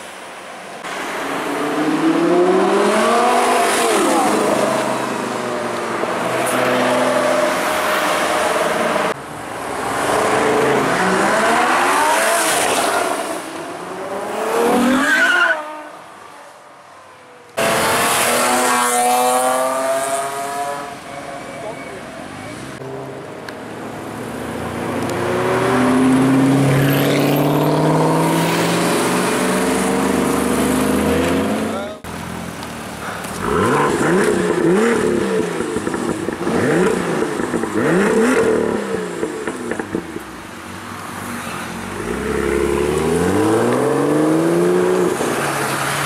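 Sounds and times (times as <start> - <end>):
performance car engines accelerating: 0.8 - 15.8, 17.6 - 21.0, 22.8 - 32.1, 33.2 - 46.0.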